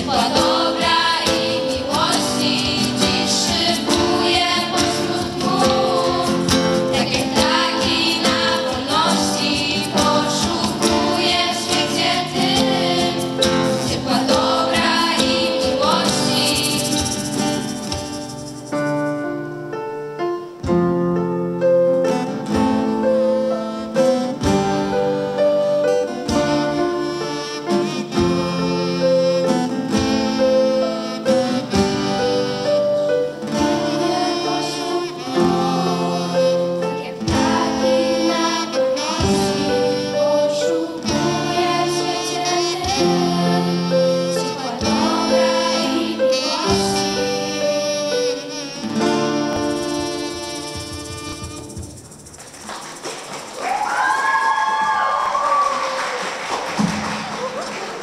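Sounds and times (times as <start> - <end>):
girls singing together: 0.0 - 17.2, 33.5 - 47.6
strummed acoustic guitar: 0.0 - 19.2, 23.9 - 52.6.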